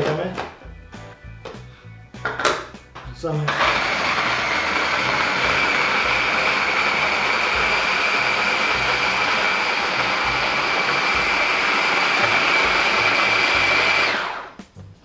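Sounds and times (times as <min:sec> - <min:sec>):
hand blender grinding bread: 0:03.5 - 0:14.6.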